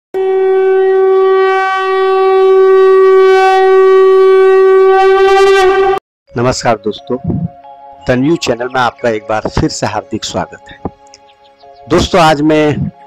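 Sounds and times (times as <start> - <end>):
conch shell blown: 0.2 - 6.0.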